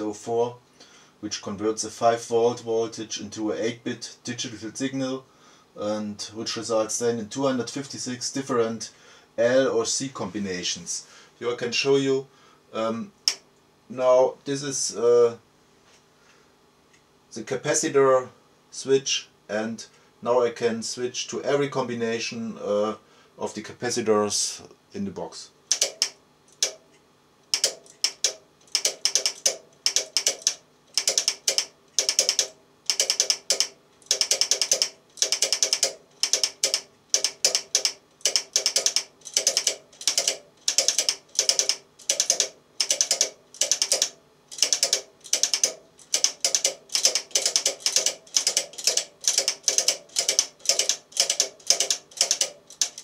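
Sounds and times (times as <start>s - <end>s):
relays clicking in clusters: 25.7s - 26.8s, 27.5s - 53.0s.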